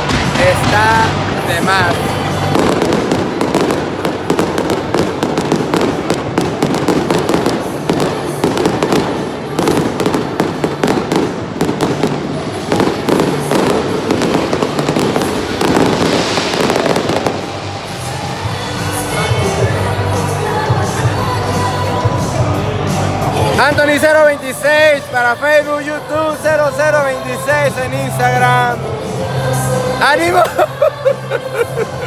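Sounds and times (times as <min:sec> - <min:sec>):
fireworks popping and banging: 0:00.0 - 0:18.7.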